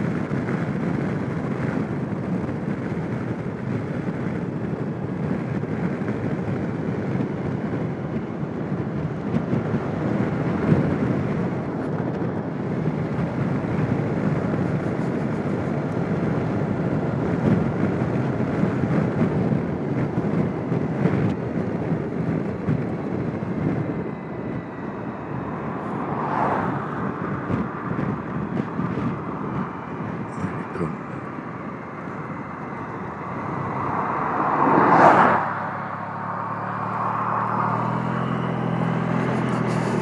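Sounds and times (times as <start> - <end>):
wind and road noise: 0.0 - 40.0
scooter engine running: 35.8 - 40.0.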